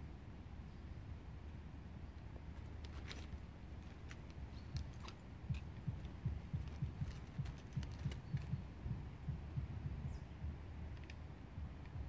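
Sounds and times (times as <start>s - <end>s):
soft low thuds: 4.1s - 12.0s.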